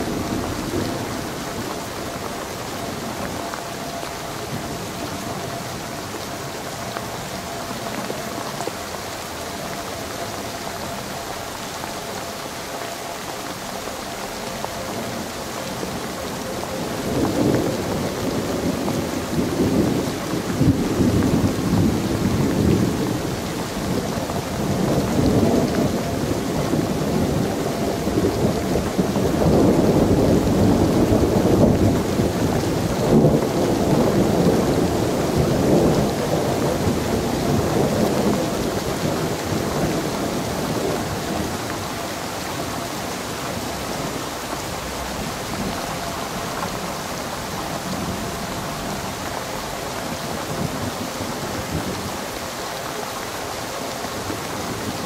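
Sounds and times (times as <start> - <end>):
steady rain: 0.0 - 55.0
rolling thunder: 14.9 - 52.3.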